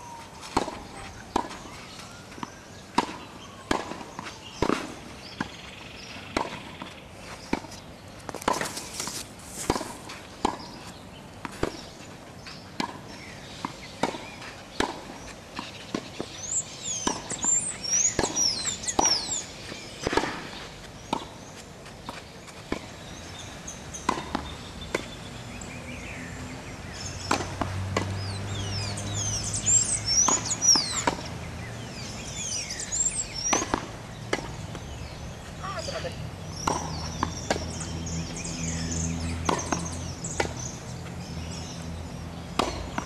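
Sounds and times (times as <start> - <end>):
birds chirping: 0.0 - 43.0
tennis ball struck and bouncing: 0.4 - 16.4, 17.0 - 19.3, 20.0 - 21.4, 24.0 - 25.2, 26.9 - 31.3, 32.0 - 35.2, 36.5 - 38.3, 39.3 - 43.0.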